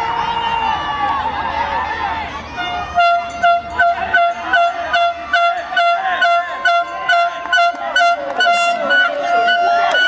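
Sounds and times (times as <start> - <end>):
voices shouting: 0.0 - 10.0
horn holding steady note: 2.5 - 10.0.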